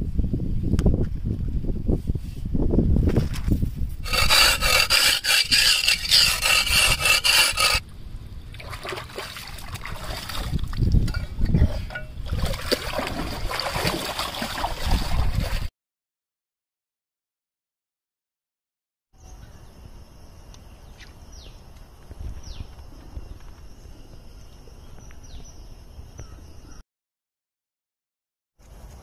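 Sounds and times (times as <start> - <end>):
rough rasping scrape: 4.0 - 7.8
water splashing and sloshing: 8.5 - 15.7.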